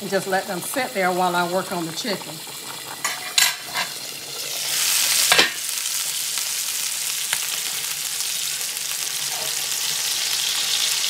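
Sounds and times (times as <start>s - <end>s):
chicken sizzling in skillet: 0.0s - 11.0s
metal lid clank: 3.0s - 4.0s, 5.3s - 5.6s.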